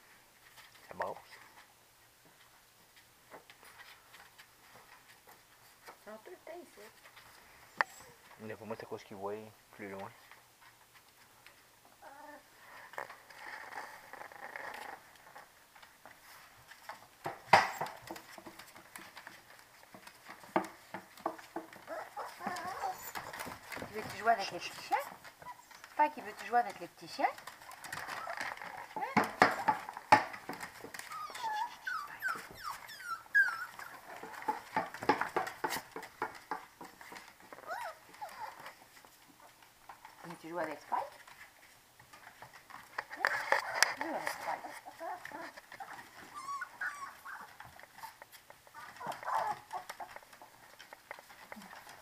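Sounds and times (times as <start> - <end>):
puppies scuffling: 0.0 - 52.0
rustling: 0.0 - 52.0
puppies whining and yipping: 21.8 - 23.6, 25.3 - 26.0, 27.5 - 29.2, 30.9 - 34.5, 37.6 - 38.8, 43.3 - 50.3.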